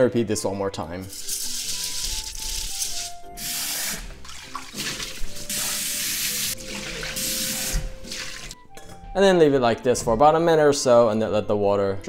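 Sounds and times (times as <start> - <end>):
rice rinsed by hand: 1.1 - 8.6.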